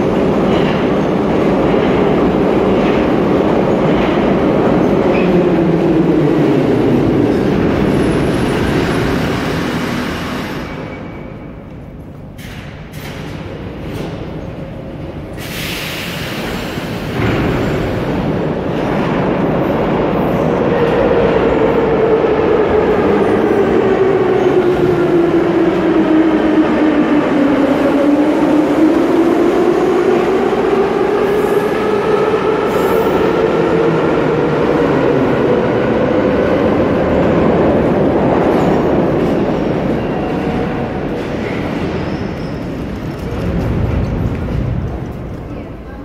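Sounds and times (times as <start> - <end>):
wheels rumbling on rails: 16.1 - 46.0.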